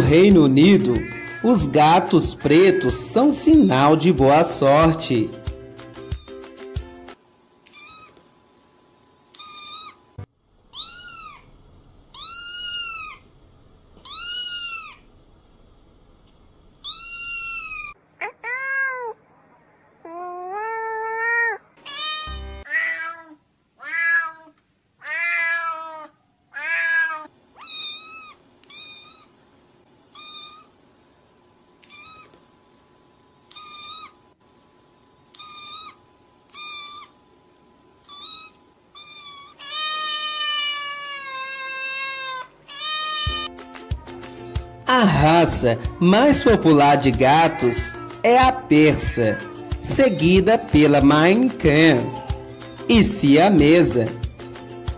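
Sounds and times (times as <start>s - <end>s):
cats meowing: 0.8s - 1.7s, 6.0s - 6.5s, 7.6s - 8.2s, 9.3s - 10.0s, 10.7s - 11.5s, 12.2s - 13.3s, 14.0s - 15.1s, 16.8s - 19.2s, 20.0s - 29.4s, 30.1s - 30.7s, 31.8s - 32.4s, 33.5s - 34.2s, 35.3s - 37.2s, 38.0s - 43.5s, 46.3s - 50.8s, 51.9s - 52.9s.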